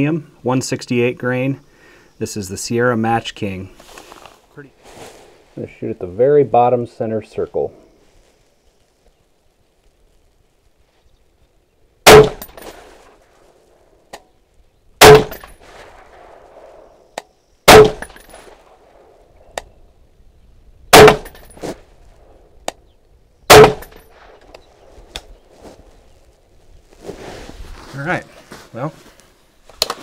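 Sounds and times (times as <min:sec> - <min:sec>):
rifle shots with echo: 0:12.0 - 0:12.8, 0:15.0 - 0:17.0, 0:17.7 - 0:19.2, 0:20.9 - 0:21.8, 0:23.5 - 0:24.4
sharp clicks: 0:19.5 - 0:19.7, 0:29.7 - 0:30.0.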